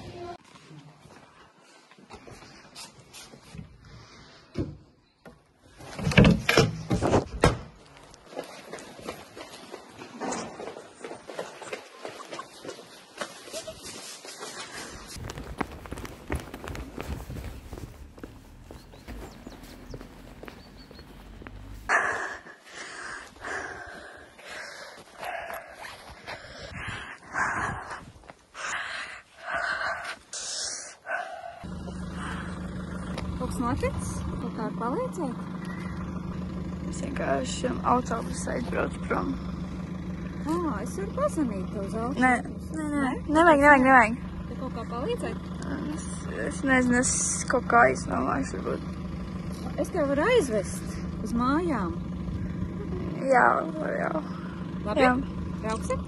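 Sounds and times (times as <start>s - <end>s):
car engine humming: 14.6s - 56.0s
person breathing heavily: 21.8s - 33.0s.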